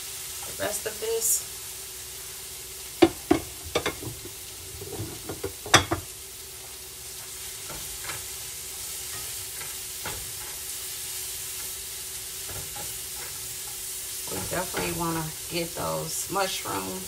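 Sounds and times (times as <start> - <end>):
vegetables sizzling in a frying pan: 0.0 - 17.0
whisk knocking on pan: 3.0 - 6.1.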